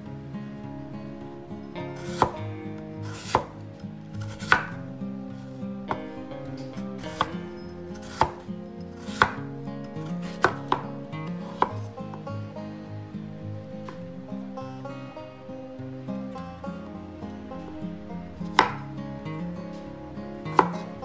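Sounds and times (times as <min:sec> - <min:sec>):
knife chopping on wooden board: 0:03.1 - 0:03.6, 0:04.3 - 0:04.7, 0:08.0 - 0:08.4, 0:09.1 - 0:09.4, 0:10.3 - 0:10.8.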